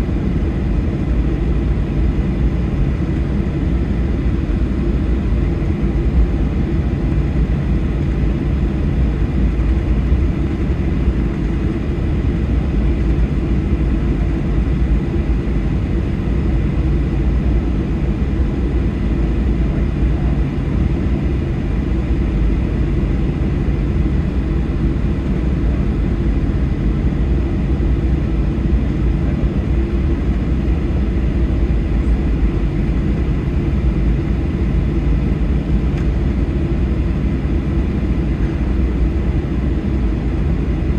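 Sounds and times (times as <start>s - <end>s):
turbofan engines low drone: 0.0s - 40.9s.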